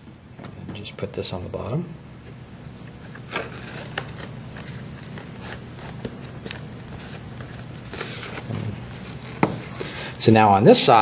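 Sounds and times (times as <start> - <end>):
card rustling: 2.2 - 9.9.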